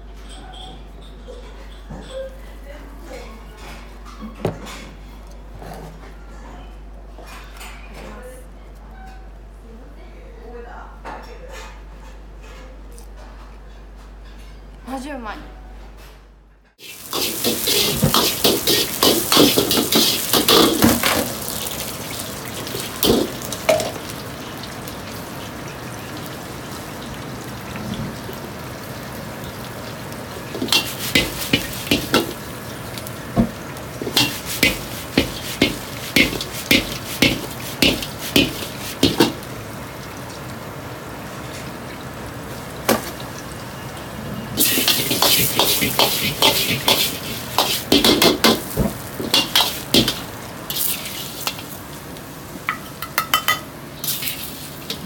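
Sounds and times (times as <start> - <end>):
metal ladle clattering in wok: 16.8 - 21.8, 22.7 - 24.1, 30.5 - 32.5, 34.0 - 39.5, 44.6 - 51.8, 52.7 - 55.0
hiss of frying: 16.8 - 55.0.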